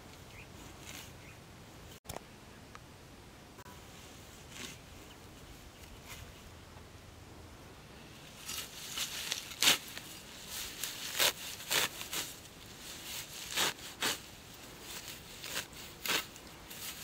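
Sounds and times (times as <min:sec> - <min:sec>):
sickle slicing through stems: 0:00.6 - 0:01.2, 0:04.4 - 0:04.8, 0:08.4 - 0:17.0.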